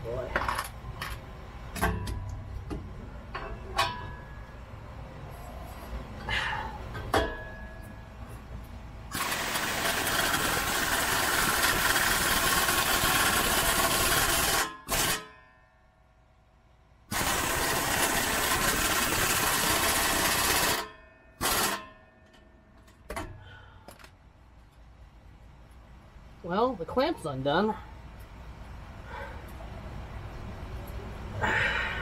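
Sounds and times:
air impact wrench hammering: 9.1s - 15.4s, 17.1s - 22.4s.

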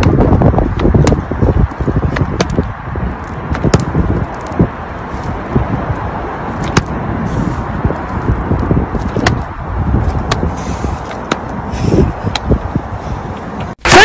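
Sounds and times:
roller wheel rumbling on asphalt: 0.0s - 13.8s.

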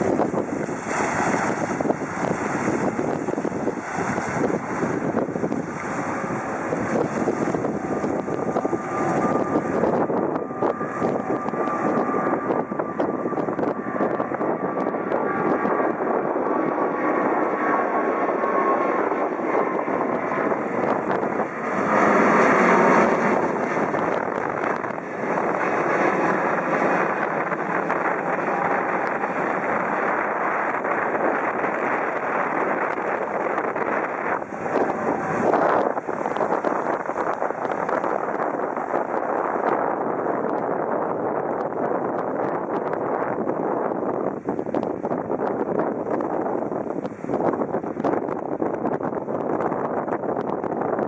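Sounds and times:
jet engine roar: 0.0s - 51.0s.

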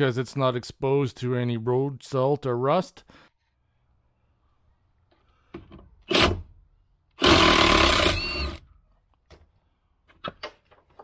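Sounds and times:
cordless impact gun whirring: 7.2s - 8.6s.

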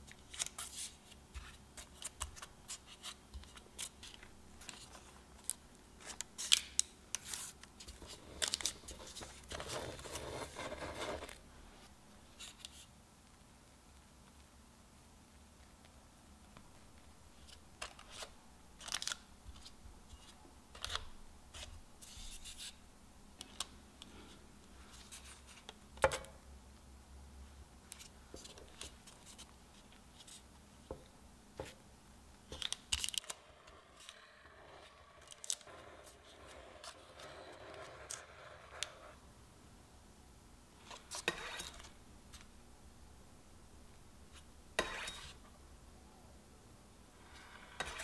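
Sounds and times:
spatula scraping cream on cake: 40.8s - 41.9s, 44.3s - 45.4s, 47.3s - 48.0s.

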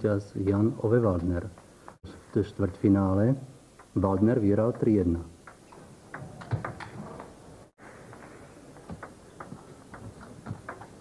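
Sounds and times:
table tennis ball ticking: 3.7s - 7.4s, 8.2s - 11.0s.

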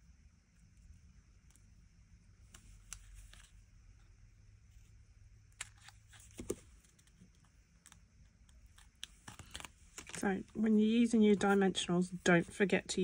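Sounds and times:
cardstock rustling: 5.6s - 7.4s, 8.8s - 12.7s.

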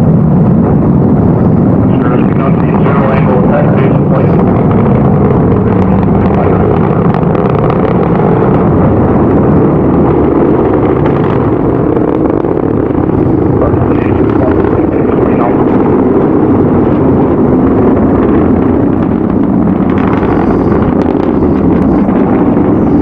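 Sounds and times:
rocket engine rumbling: 0.0s - 23.0s.

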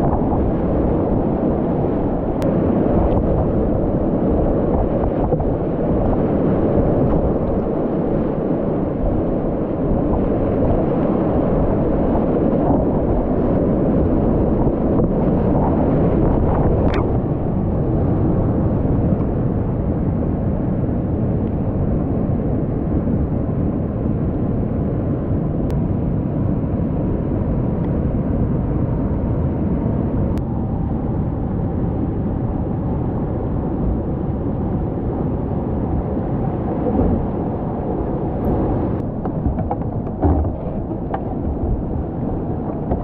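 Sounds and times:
rapids roaring around kayak: 0.0s - 20.6s, 34.7s - 43.0s.

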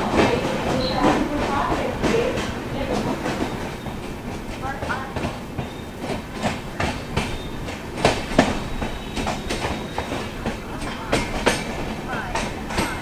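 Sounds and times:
train rumbling: 0.0s - 13.0s
wheels clacking over rail joints: 0.0s - 13.0s.

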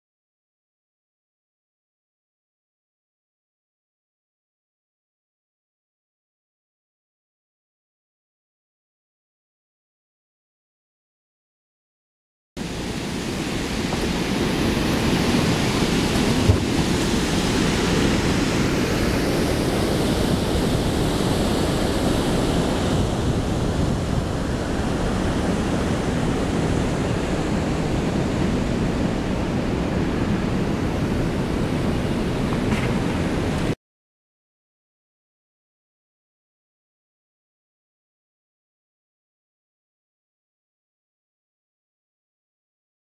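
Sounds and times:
wind buffeting microphone: 12.6s - 33.8s.

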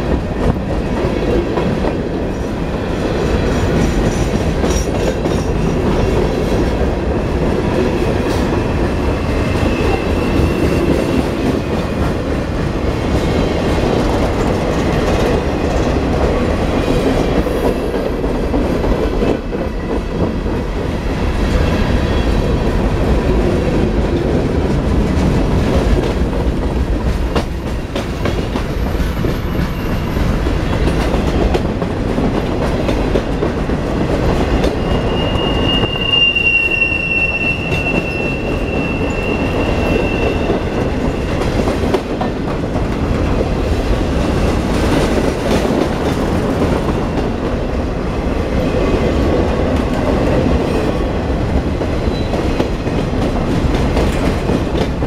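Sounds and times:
train wheels rumbling on rails: 0.0s - 55.0s
high-pitched wheel squeal: 34.7s - 41.3s.

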